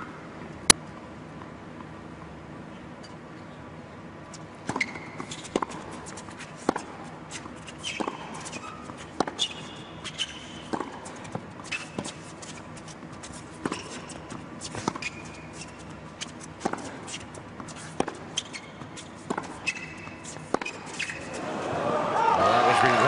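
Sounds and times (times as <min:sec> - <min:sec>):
shoes squeaking on court: 0:02.7 - 0:21.8
racket striking tennis ball: 0:04.6 - 0:12.3, 0:13.0 - 0:21.5.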